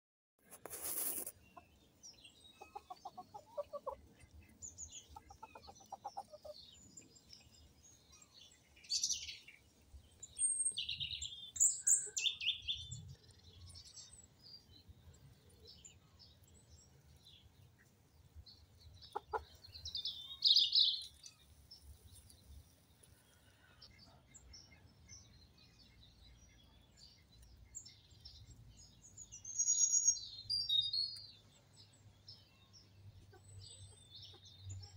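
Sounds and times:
small birds chirping: 0.4 - 34.9
chickens clucking: 0.7 - 7.5, 18.6 - 22.0.

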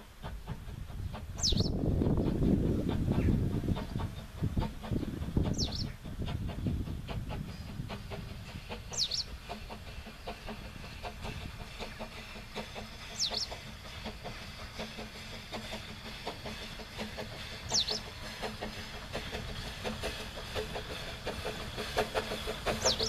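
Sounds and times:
steam locomotive exhaust beats: 0.0 - 23.0
bird high sweeping call: 8.9 - 9.3, 13.2 - 13.6.

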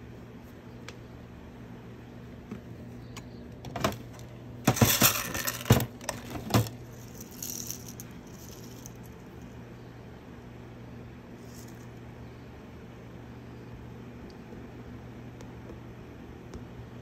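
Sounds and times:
small metal pieces jingling: 6.9 - 9.2.

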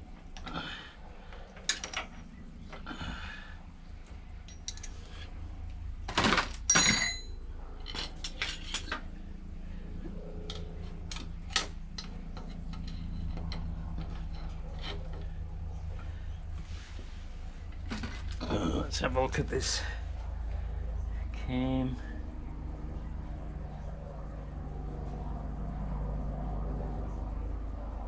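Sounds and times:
steady low hum: 0.0 - 28.0
metal tools clinking and clattering: 1.6 - 2.2, 4.4 - 5.2, 6.1 - 9.1.

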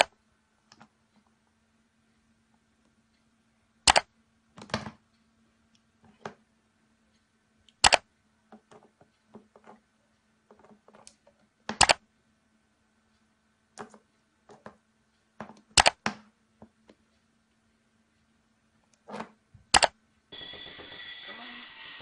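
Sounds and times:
faint steady hum: 0.0 - 22.0
sharp clicks of small objects: 3.8 - 4.7, 7.7 - 8.1, 11.0 - 12.0, 15.4 - 16.3, 19.7 - 20.0.

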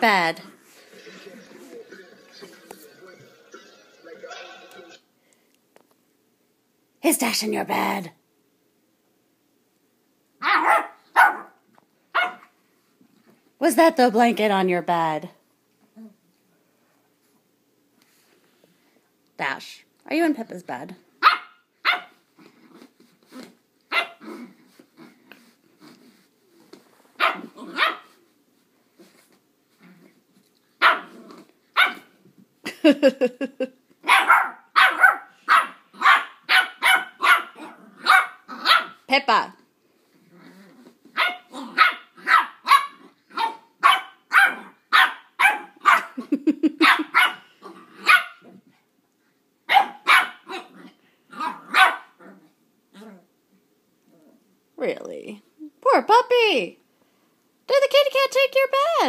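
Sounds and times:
puppy yapping: 10.4 - 12.5, 21.2 - 22.2, 23.9 - 24.4, 27.2 - 28.1, 30.8 - 32.1, 34.0 - 39.1, 41.1 - 46.2, 46.8 - 48.5, 49.7 - 52.3
puppy growling: 22.3 - 26.8, 31.0 - 31.6, 37.1 - 39.0, 40.1 - 43.7, 47.3 - 48.7, 50.4 - 53.4, 54.0 - 54.5.

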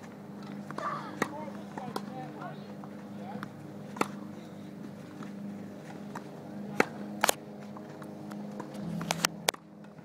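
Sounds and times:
tennis racket hitting ball: 0.4 - 2.2, 2.9 - 4.3, 4.9 - 9.6
balls bouncing on hard court: 0.4 - 4.3, 5.2 - 7.0.

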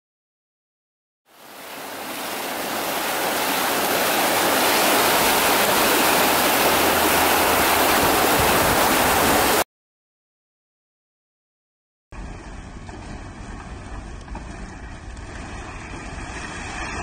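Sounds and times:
steady rushing noise: 1.3 - 9.6, 12.2 - 17.0.

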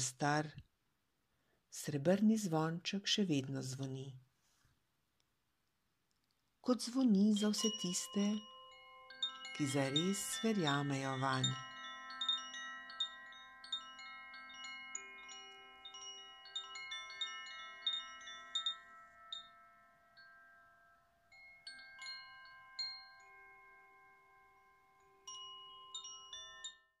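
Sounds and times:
tinkling chimes: 6.7 - 27.0.

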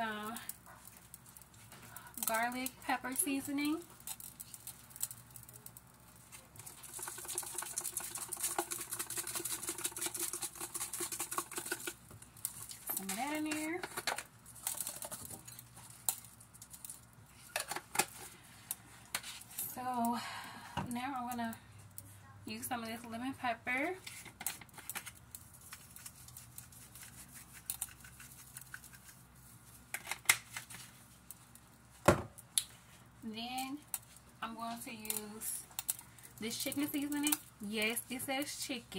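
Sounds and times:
seasoning shaker rattling: 0.0 - 20.0, 24.0 - 31.9, 33.6 - 38.9
plastic shaker bottle rattling: 6.5 - 15.6.

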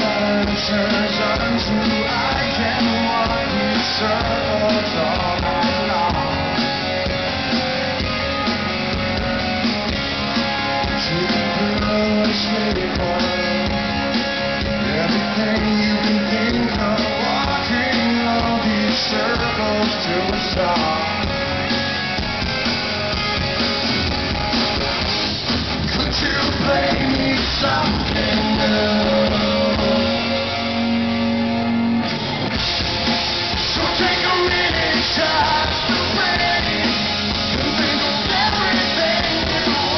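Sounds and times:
man singing lead vocal: 0.0 - 6.8, 10.8 - 21.5, 25.8 - 31.1, 33.6 - 39.9
live rock band playing: 0.0 - 39.9.

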